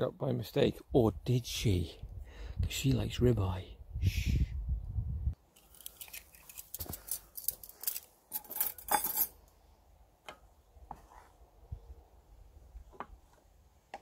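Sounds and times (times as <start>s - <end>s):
cutlery clinking: 8.4s - 9.4s.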